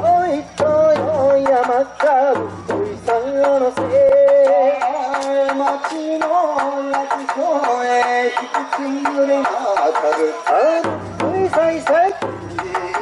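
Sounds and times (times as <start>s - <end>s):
person singing into a microphone: 0.0s - 13.0s.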